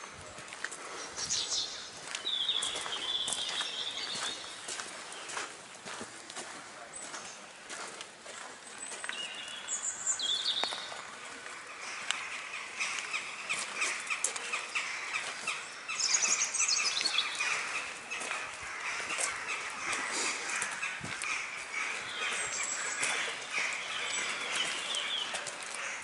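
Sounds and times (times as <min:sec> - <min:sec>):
footsteps on gravel: 0:00.0 - 0:26.0
small birds chirping: 0:00.3 - 0:26.0.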